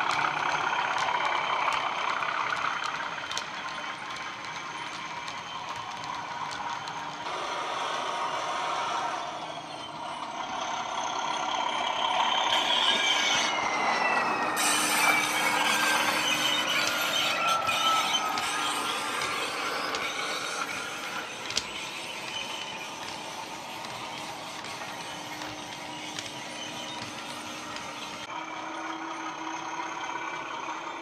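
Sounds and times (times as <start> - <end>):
model train wheels clattering: 0.0 - 7.3, 13.6 - 31.0
model locomotive diesel engine sound: 0.0 - 31.0
whistling whine falling in pitch: 7.3 - 31.0.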